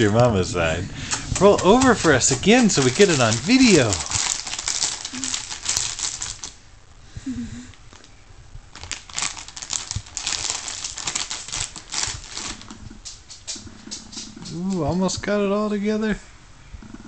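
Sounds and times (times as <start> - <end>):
plastic pack crinkling: 1.1 - 6.6, 7.7 - 13.3.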